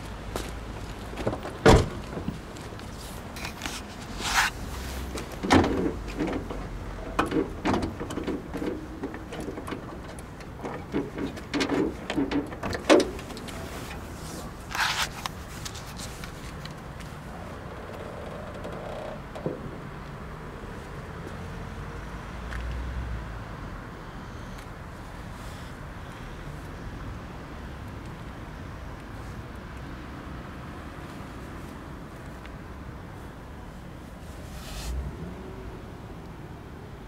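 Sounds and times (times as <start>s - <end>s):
car doors and fittings clicking: 5.1s - 14.0s.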